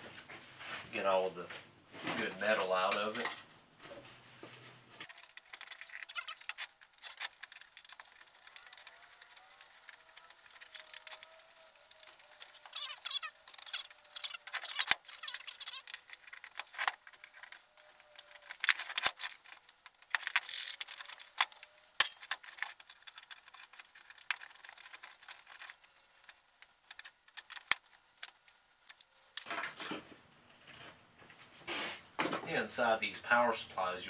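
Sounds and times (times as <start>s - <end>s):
metal parts clinking and rattling: 5.0s - 29.5s.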